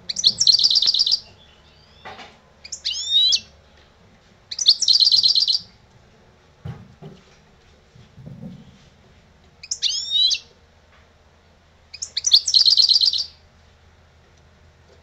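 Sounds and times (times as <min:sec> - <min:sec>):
goldfinch singing: 0:00.0 - 0:03.5, 0:04.5 - 0:05.7, 0:09.6 - 0:10.5, 0:11.9 - 0:13.4
soft knocks: 0:06.6 - 0:08.9.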